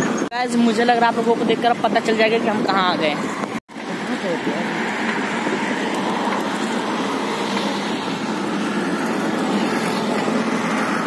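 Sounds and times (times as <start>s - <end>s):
road traffic passing: 0.0s - 11.0s.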